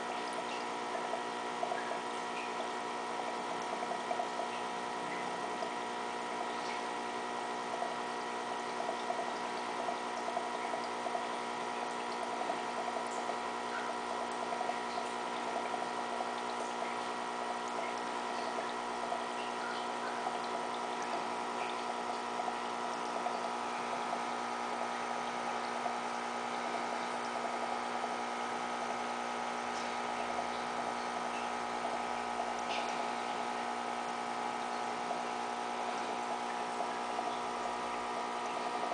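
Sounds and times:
aquarium pump humming: 0:00.0 - 0:38.9
water bubbling: 0:00.0 - 0:38.9.

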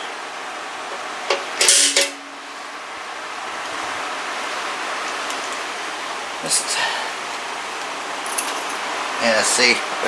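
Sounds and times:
steady background hiss: 0:00.0 - 0:10.0
center punch snapping on metal: 0:01.3 - 0:02.2.

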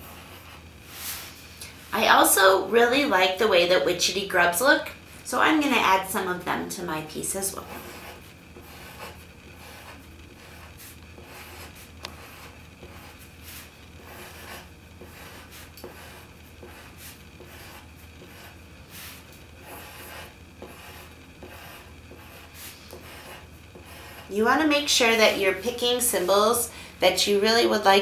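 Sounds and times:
pencil scratching on paper: 0:00.0 - 0:00.7, 0:07.1 - 0:26.4.

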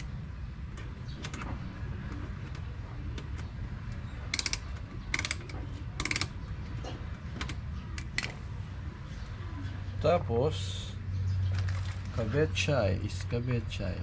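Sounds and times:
screwdriver ratchet clicking: 0:04.3 - 0:06.3.

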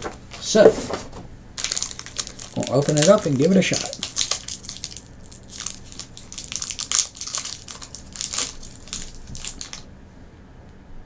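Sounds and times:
plastic wrapper crinkling: 0:01.6 - 0:09.9.

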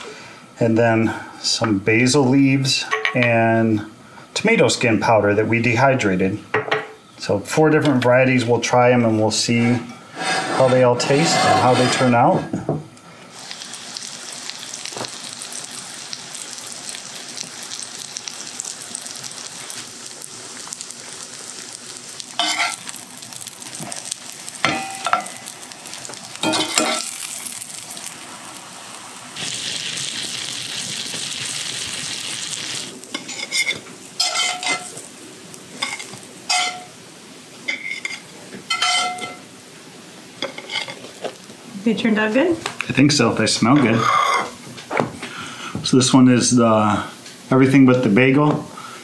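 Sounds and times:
metal spatula scraping a pan: 0:09.6 - 0:12.5, 0:22.4 - 0:22.8, 0:33.1 - 0:34.9, 0:35.8 - 0:36.9, 0:37.7 - 0:39.4, 0:40.4 - 0:41.0, 0:43.8 - 0:44.6
mushrooms sizzling in a skillet: 0:13.2 - 0:44.6, 0:45.4 - 0:49.0
spatula clinking on ceramic plate: 0:35.8 - 0:36.9, 0:37.7 - 0:39.4.

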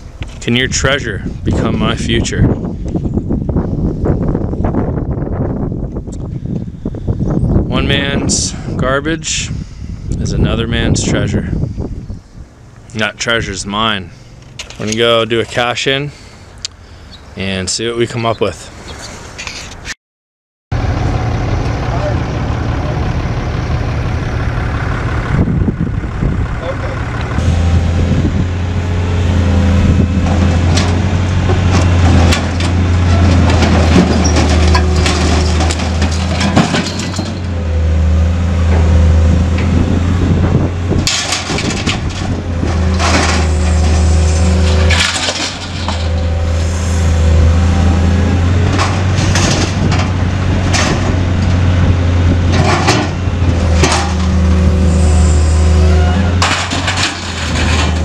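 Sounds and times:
excavator engine running: 0:20.7 - 0:58.0
scrap metal clanking and crashing: 0:30.0 - 0:37.7, 0:40.6 - 0:58.0.

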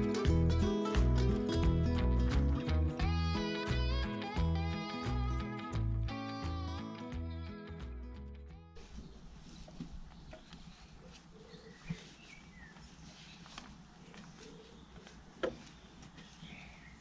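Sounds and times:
faint bird chirps: 0:08.8 - 0:17.0.

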